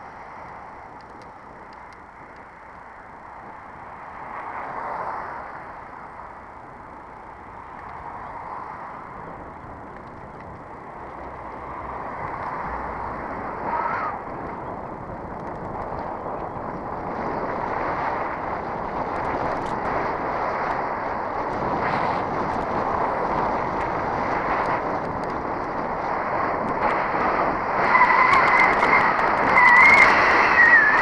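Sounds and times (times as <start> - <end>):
bicycle wind and tyre noise: 0.0 - 31.0.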